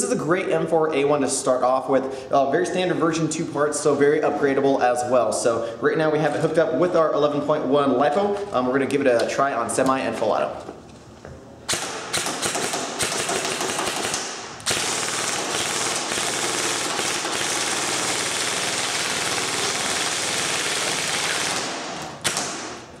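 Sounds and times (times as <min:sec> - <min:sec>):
airsoft gun full-auto burst: 0:11.7 - 0:22.9.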